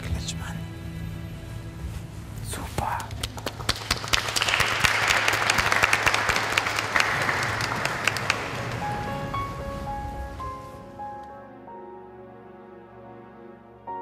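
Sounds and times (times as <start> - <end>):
crowd applauding: 3.0 - 9.7
soft musical notes: 7.6 - 14.0.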